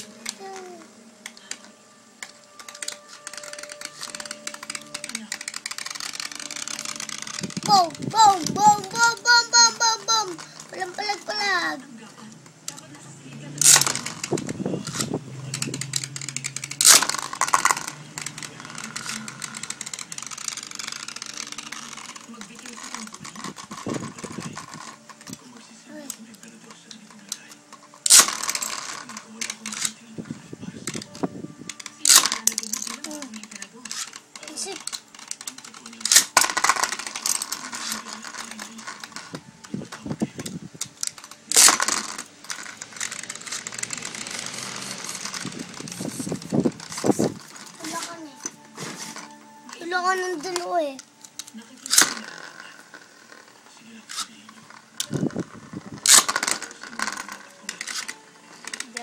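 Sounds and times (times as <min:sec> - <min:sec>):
spinning tops clattering: 0:13.4 - 0:26.1, 0:27.2 - 0:30.0, 0:31.7 - 0:39.4, 0:40.8 - 0:48.2, 0:49.1 - 0:59.0
spinning top launched: 0:13.5 - 0:24.9, 0:28.0 - 0:29.9, 0:41.2 - 0:47.3.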